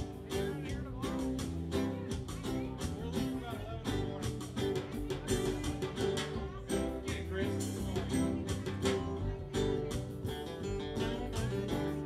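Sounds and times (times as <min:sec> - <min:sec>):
live band playing: 0:00.0 - 0:12.0.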